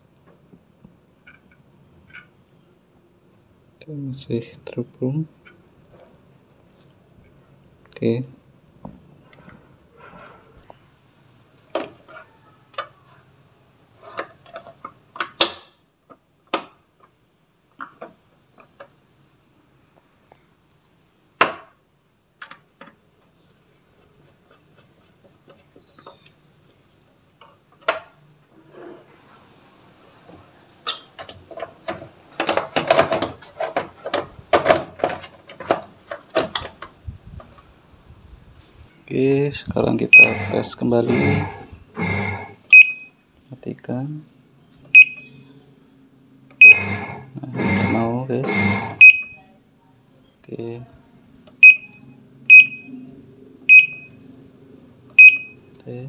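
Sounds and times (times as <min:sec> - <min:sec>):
plastic parts knocking and clattering: 0:30.8 - 0:37.6.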